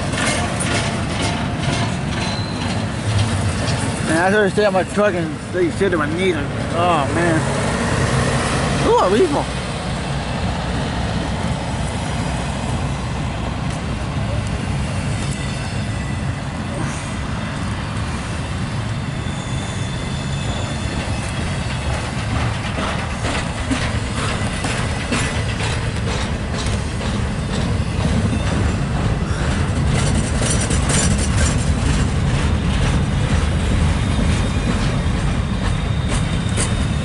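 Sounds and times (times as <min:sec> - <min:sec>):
freight train rumbling: 0:00.0 - 0:37.0
wheels clacking over rail joints: 0:00.0 - 0:37.0.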